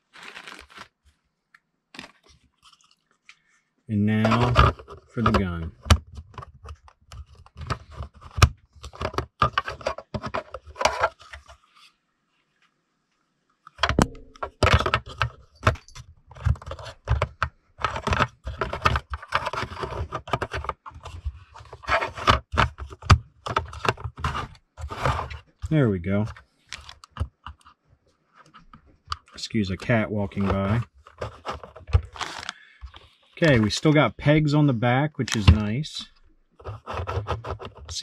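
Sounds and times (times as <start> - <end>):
plastic toy parts clicking and rattling: 13.7 - 24.4.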